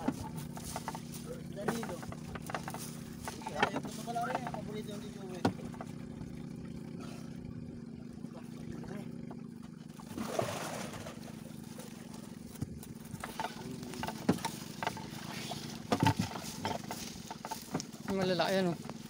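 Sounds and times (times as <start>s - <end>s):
knocks against boat hull: 0.0s - 6.0s, 12.6s - 18.2s
steady low hum: 0.0s - 19.0s
water splashing off net: 10.0s - 12.2s.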